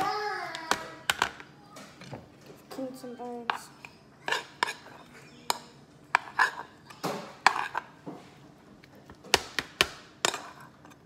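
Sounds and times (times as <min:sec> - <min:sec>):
metal spoon scraping frying pan: 0:06.2 - 0:06.7.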